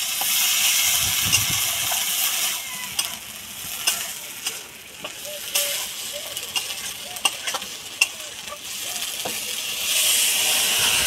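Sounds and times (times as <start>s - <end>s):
curry sizzling in a pan: 0.0s - 11.0s
metal spatula clicking on pan: 6.4s - 8.2s.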